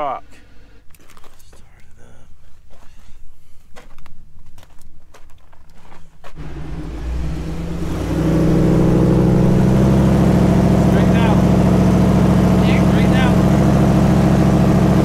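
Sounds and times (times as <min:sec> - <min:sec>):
scuffs and clicks: 0:00.9 - 0:01.7
vehicle engine under load: 0:06.4 - 0:15.0.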